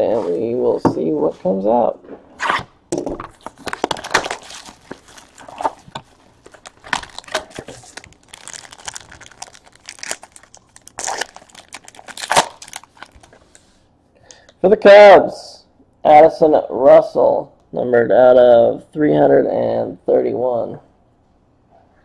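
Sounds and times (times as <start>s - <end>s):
foil wrappers crinkling and tearing: 3.2s - 13.6s.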